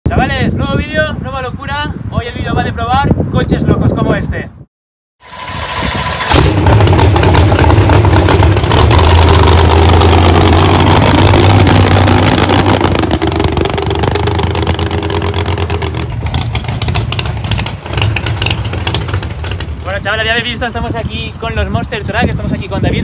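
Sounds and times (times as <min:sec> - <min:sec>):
truck engine running loudly: 0:05.2 - 0:20.3.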